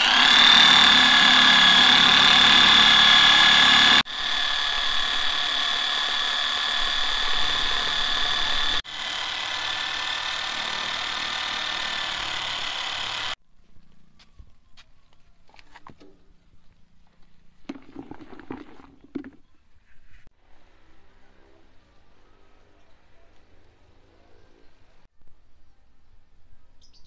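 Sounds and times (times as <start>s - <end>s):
drill bit stirring liquid: 0.0s - 13.4s
electric drill whining: 0.0s - 13.4s.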